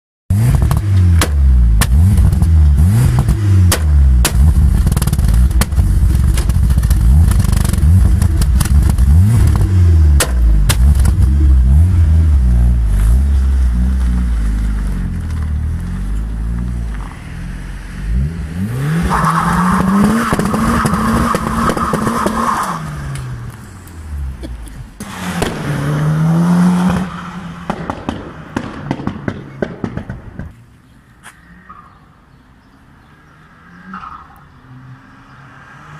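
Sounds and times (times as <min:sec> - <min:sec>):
exhaust bangs and pops: 0:00.3 - 0:17.1, 0:19.0 - 0:30.6
rally car engine idling and revving: 0:00.3 - 0:30.5.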